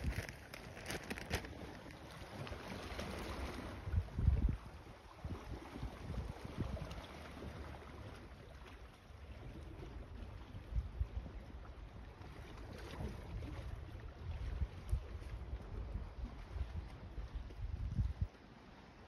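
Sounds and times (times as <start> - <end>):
wind buffeting microphone: 3.1 - 7.6, 9.5 - 18.4.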